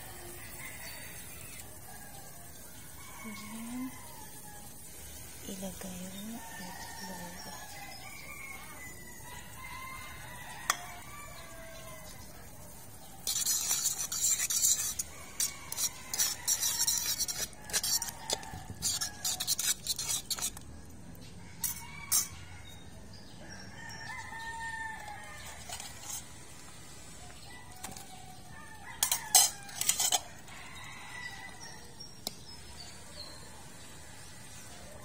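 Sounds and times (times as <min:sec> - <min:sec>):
roosters crowing: 0:00.0 - 0:05.1, 0:06.1 - 0:20.6, 0:21.2 - 0:35.0
fork scraping in a wok: 0:00.4 - 0:02.0, 0:05.1 - 0:12.3, 0:13.0 - 0:20.7, 0:21.6 - 0:22.8, 0:23.9 - 0:26.7, 0:27.5 - 0:33.3.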